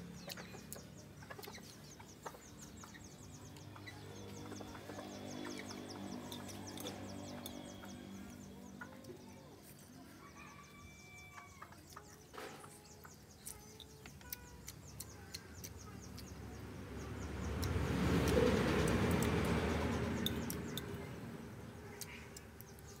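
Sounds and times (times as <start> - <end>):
chickens clucking: 0.0 - 16.4
small birds chirping: 0.0 - 23.0.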